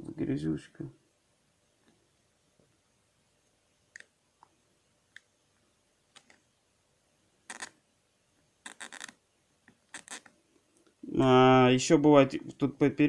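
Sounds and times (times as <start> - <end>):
needle scraping speaker mesh: 9.9 - 10.3.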